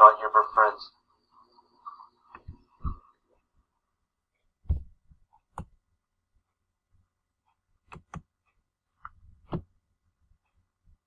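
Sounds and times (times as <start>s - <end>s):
computer mouse clicks: 5.4s - 5.8s, 7.9s - 8.4s.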